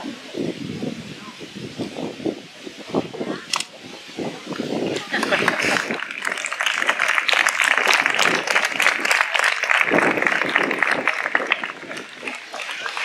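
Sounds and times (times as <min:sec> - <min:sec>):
voices: 0:00.0 - 0:13.0
audience applauding: 0:05.0 - 0:13.0.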